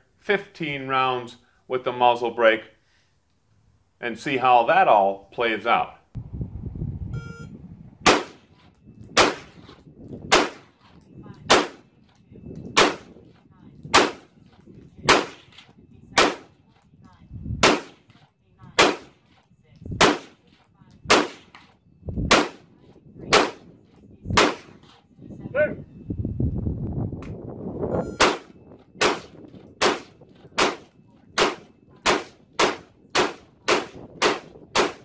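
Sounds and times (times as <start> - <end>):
rifle shots: 8.0 - 8.6, 9.2 - 10.9, 11.5 - 11.9, 12.8 - 13.1, 13.9 - 14.3, 15.0 - 16.6, 17.6 - 18.2, 18.8 - 19.2, 20.0 - 20.4, 21.1 - 21.7, 22.3 - 22.7, 23.3 - 23.7, 24.4 - 24.8, 28.2 - 35.0.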